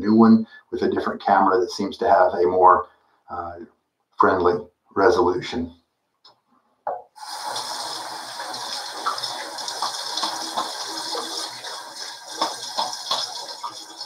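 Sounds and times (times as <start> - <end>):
sink tap running: 7.2 - 14.0
water splashes and knocks: 9.0 - 14.0.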